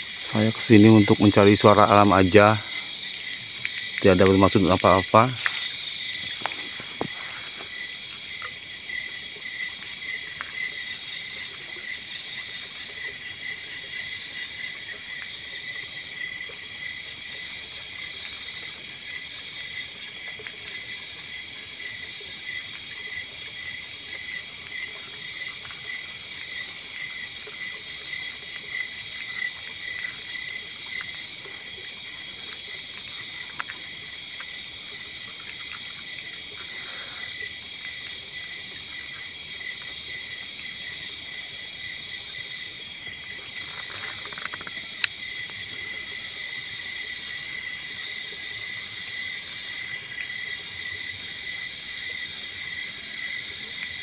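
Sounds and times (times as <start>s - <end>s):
night insects trilling: 0.0s - 54.0s.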